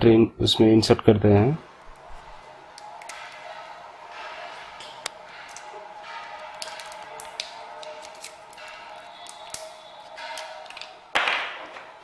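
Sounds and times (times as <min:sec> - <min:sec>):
wrapper crinkling: 0:04.8 - 0:11.0.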